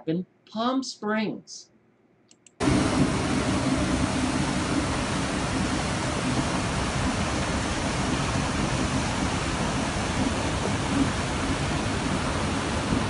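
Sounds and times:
floodwater rushing: 2.6 - 13.0.

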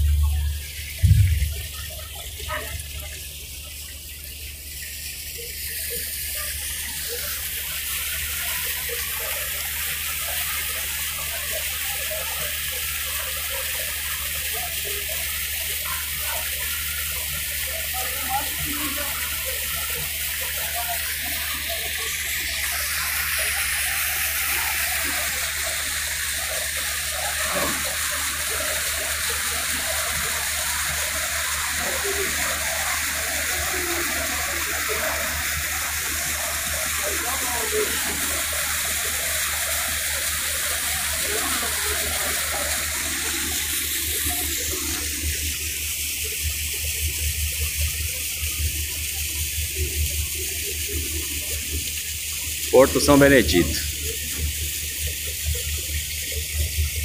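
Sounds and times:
boat engine drone: 0.0 - 9.9
water rushing along boat hull: 0.0 - 57.0.

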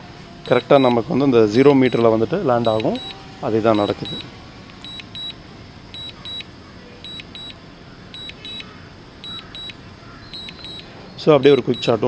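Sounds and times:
high double beeps: 0.4 - 1.1, 1.8 - 7.6, 8.2 - 10.9.

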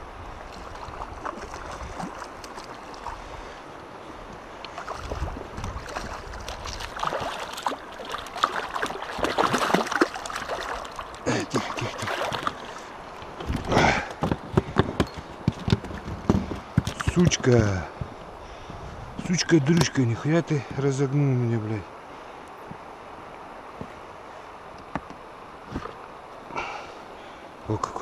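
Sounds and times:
river rushing: 0.0 - 14.7
fish splashing in water: 4.7 - 12.9.

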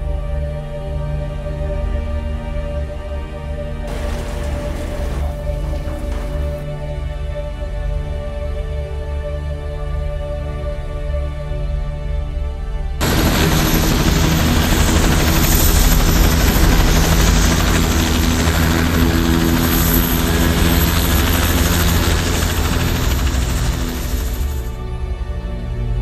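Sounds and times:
helicopter rotor and engine: 3.9 - 6.6, 13.0 - 25.1.

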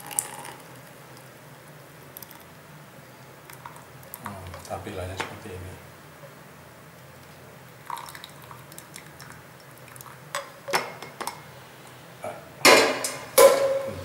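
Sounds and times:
kettle clanking on stove: 12.6 - 13.9.

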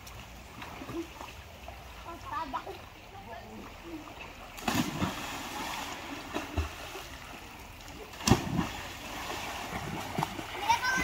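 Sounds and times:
people splashing into water: 4.5 - 11.0.

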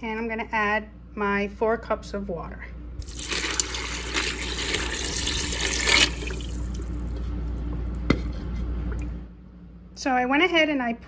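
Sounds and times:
water pouring into metal pot: 3.0 - 7.1.

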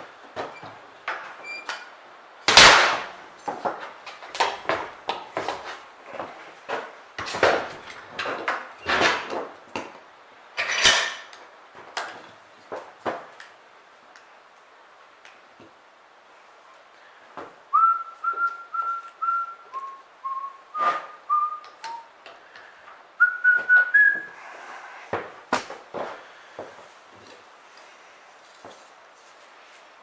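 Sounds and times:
man whistling a tune: 17.7 - 22.1, 23.2 - 24.4.

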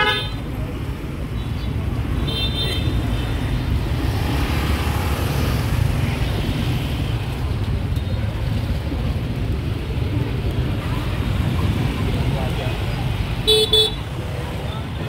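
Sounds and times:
street traffic rumble: 0.0 - 15.0
car horn beep: 13.5 - 14.0.

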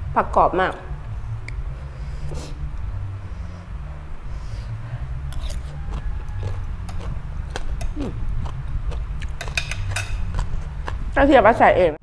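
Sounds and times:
steady low hum: 0.0 - 12.0
chewing crisp vegetables: 5.2 - 11.3
metal spoon scraping ceramic plate: 9.4 - 10.4.

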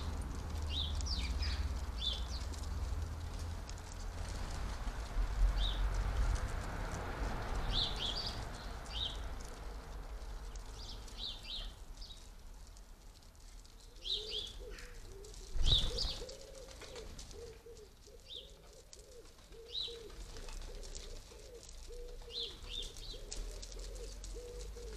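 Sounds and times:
sparrows chirping: 0.0 - 2.8, 5.5 - 5.9, 7.6 - 12.4, 13.6 - 24.9
pigeon cooing: 13.9 - 24.9.

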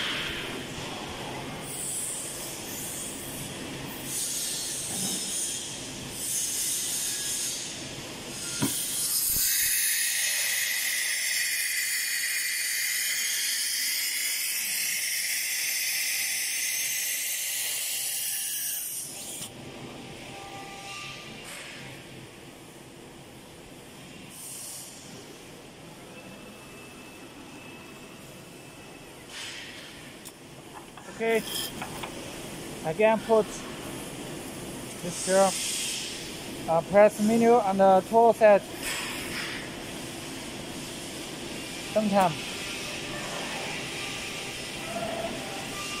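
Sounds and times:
compressed air hissing: 35.1 - 36.4.

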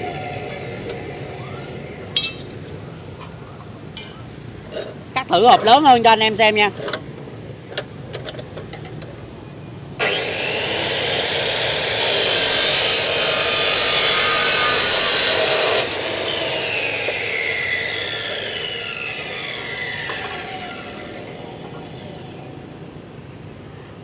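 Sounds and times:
saw cutting steel tube: 10.0 - 22.4
cut-off saw motor whine: 10.0 - 22.6.

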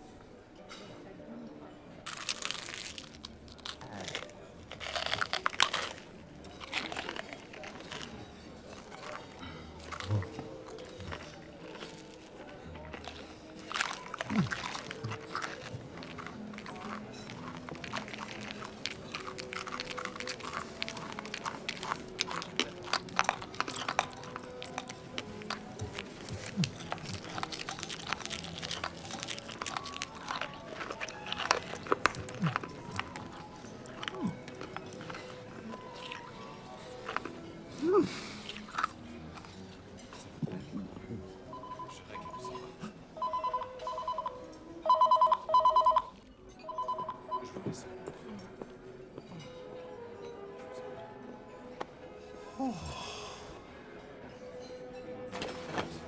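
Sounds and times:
shell crunching while chewing: 2.1 - 39.7.

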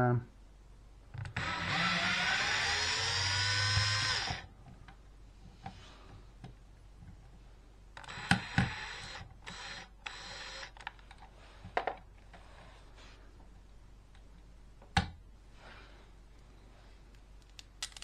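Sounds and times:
cordless drill whining: 1.4 - 4.5, 8.0 - 10.8.

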